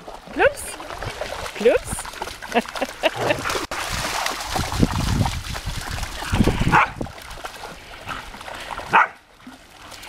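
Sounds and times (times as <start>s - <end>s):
dogs splashing through water: 0.0s - 10.0s
dog barking: 6.7s - 7.0s, 8.9s - 9.2s.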